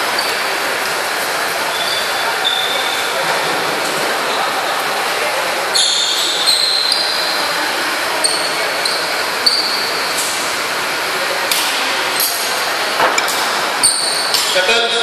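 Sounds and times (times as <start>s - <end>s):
sports shoes squeaking: 1.7s - 3.2s, 5.7s - 7.5s, 8.2s - 10.2s.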